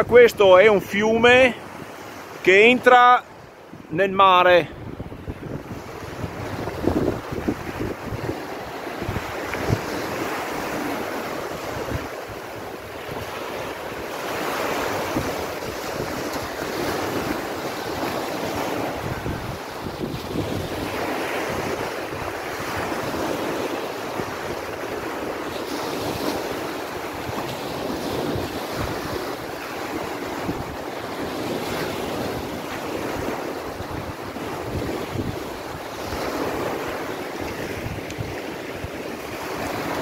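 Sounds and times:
rushing water: 0:00.0 - 0:40.0
wind buffeting microphone: 0:04.7 - 0:40.0.

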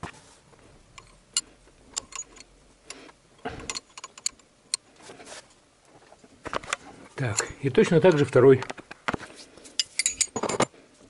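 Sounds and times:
wrenches clicking on metal fittings: 0:07.3 - 0:08.6.

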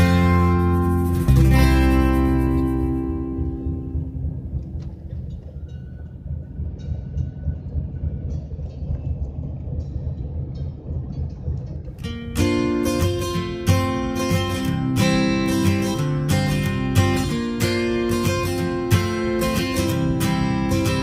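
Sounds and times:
guitar music: 0:00.0 - 0:06.0, 0:12.0 - 0:21.0
car road noise rumble: 0:00.0 - 0:21.0.

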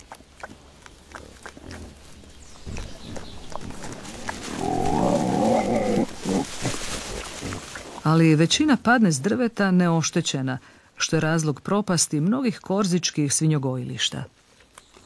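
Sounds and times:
pigs rooting in dry leaves: 0:00.0 - 0:10.5, 0:11.2 - 0:15.0
pig grunting call: 0:03.1 - 0:07.8.

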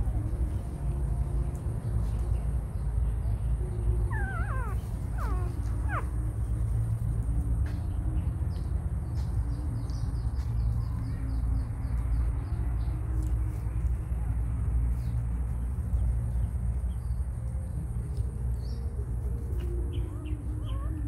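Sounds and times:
steady low rumble: 0:00.0 - 0:21.0
young animal squealing: 0:04.1 - 0:06.1.

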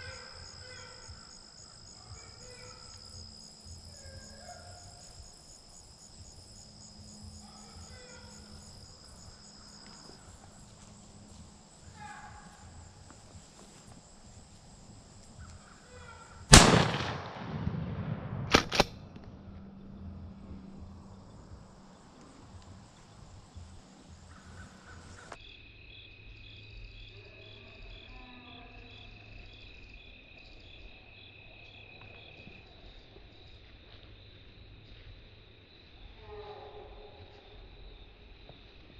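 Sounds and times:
insects trilling: 0:00.0 - 0:17.1, 0:19.7 - 0:38.9
shotgun blast: 0:16.5 - 0:19.0.

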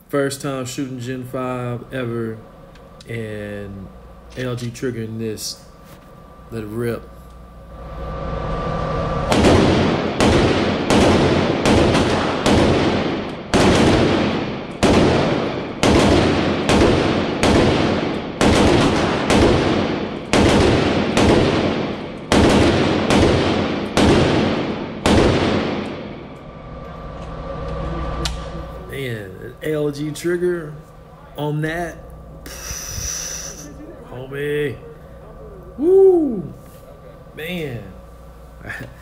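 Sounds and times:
rifle shots: 0:09.3 - 0:26.4.

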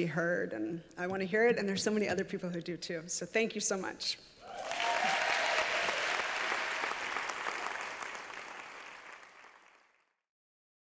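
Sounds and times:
audience applause: 0:04.5 - 0:10.1.

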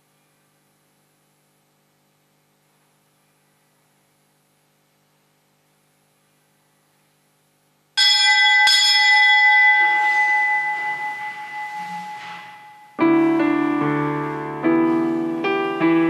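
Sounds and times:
small bell ringing: 0:08.0 - 0:13.0.

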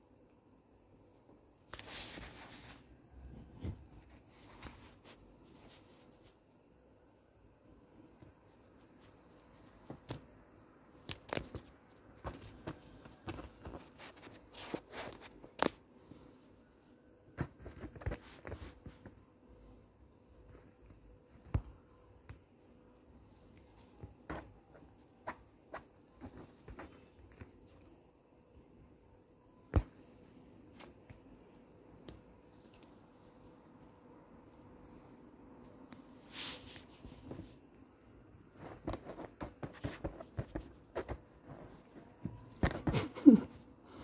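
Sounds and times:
paws and claws on fabric: 0:11.0 - 0:19.7, 0:20.3 - 0:28.0, 0:38.5 - 0:44.0.

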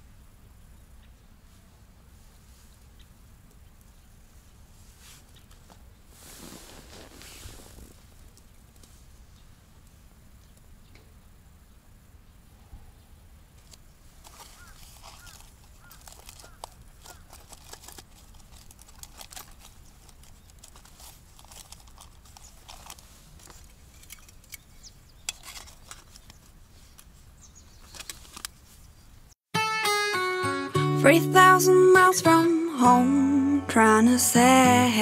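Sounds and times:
clicks and rustling of small objects: 0:13.6 - 0:29.0.

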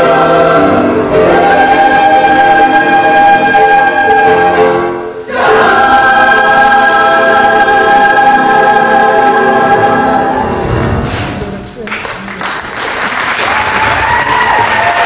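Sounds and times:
choir singing: 0:00.0 - 0:11.2.

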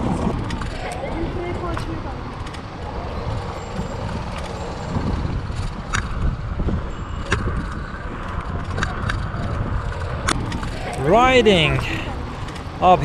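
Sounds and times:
bike clicks: 0:00.0 - 0:11.0, 0:11.7 - 0:12.8
wind and rolling noise: 0:00.0 - 0:13.0.

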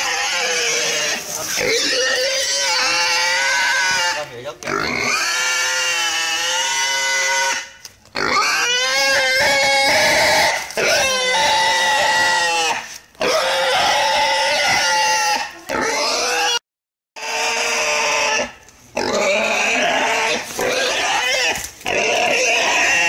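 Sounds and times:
boar squealing: 0:00.0 - 0:16.6, 0:17.2 - 0:23.0.

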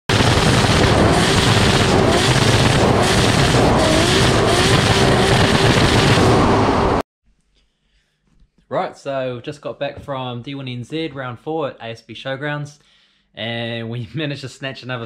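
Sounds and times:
car engine at high revs: 0:00.1 - 0:07.0
wind noise: 0:00.1 - 0:07.0.

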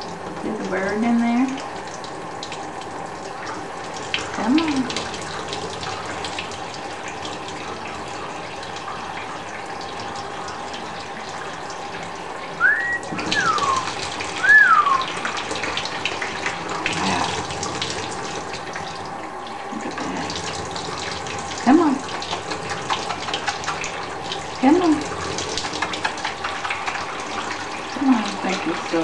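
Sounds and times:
water splashing on plastic tray: 0:00.0 - 0:08.8, 0:12.6 - 0:19.0, 0:19.8 - 0:29.0
short whistled notes: 0:12.6 - 0:15.1.

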